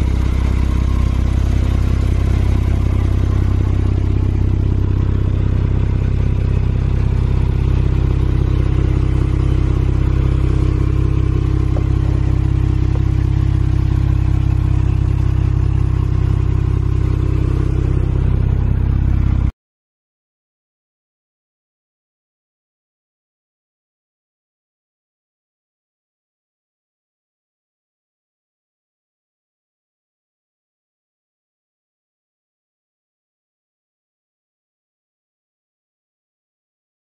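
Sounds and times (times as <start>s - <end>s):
car engine idling: 0.0s - 19.5s.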